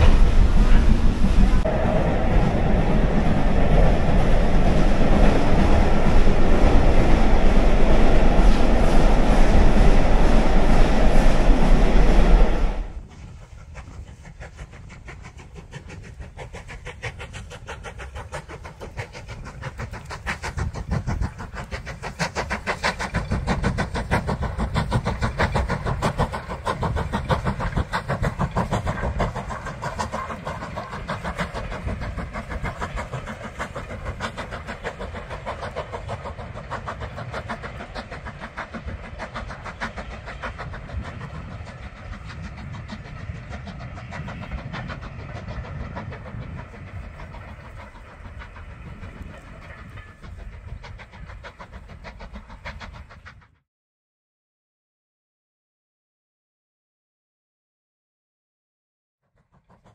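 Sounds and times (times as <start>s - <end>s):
steam locomotive chuffing: 0.0s - 53.6s, 59.3s - 59.9s
train wheels on rails: 0.0s - 53.6s.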